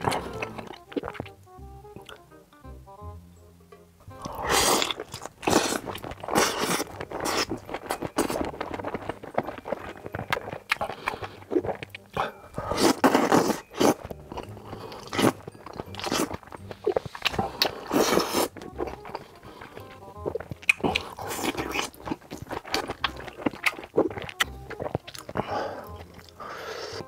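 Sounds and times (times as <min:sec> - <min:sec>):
chewing: 0:00.0 - 0:02.2, 0:04.2 - 0:27.0
wet slurping of noodles: 0:04.3 - 0:07.6, 0:12.6 - 0:15.4, 0:16.1 - 0:18.5
crunchy biting clicks: 0:12.8 - 0:26.4.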